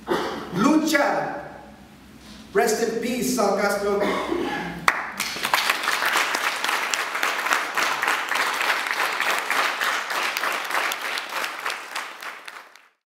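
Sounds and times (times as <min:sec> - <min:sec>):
audience applauding: 0:04.9 - 0:13.0.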